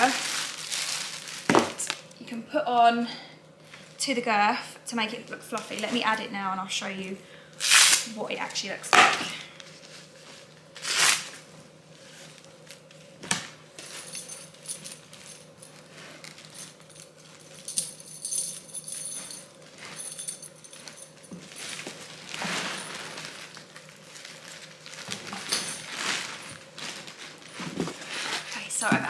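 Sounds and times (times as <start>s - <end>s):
metal buckles jingling: 16.5s - 21.3s.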